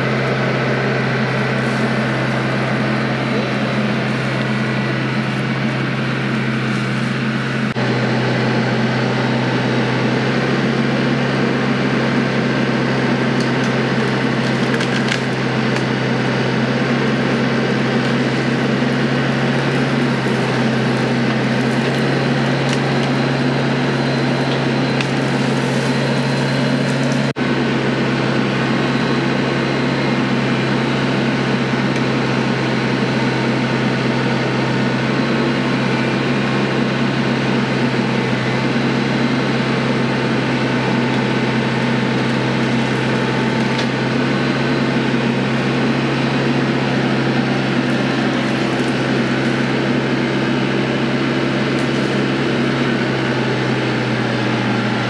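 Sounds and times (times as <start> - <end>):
tractor diesel engine running: 0.0 - 55.0
wood cracking and splintering: 13.1 - 27.3, 37.6 - 54.1.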